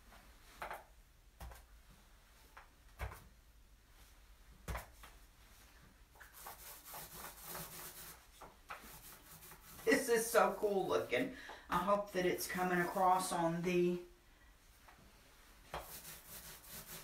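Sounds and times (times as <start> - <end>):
paint roller scraping on coating: 6.2 - 13.7, 15.8 - 17.0.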